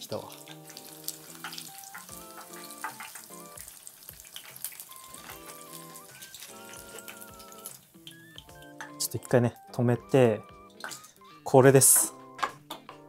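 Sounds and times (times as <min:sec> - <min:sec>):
oil sizzling while deep-frying: 0:00.0 - 0:08.7
background music simple melody: 0:00.0 - 0:13.0.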